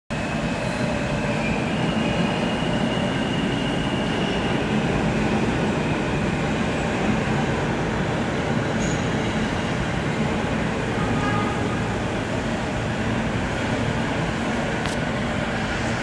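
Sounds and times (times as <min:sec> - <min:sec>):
subway train wheels rumbling: 0:00.1 - 0:16.0
high wheel squeal: 0:00.2 - 0:07.1, 0:08.6 - 0:09.9.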